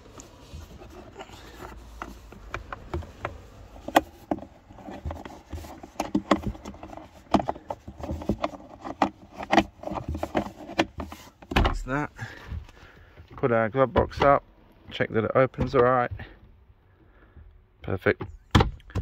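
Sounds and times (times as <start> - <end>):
plastic clicks and knocks: 18.2 - 19.0.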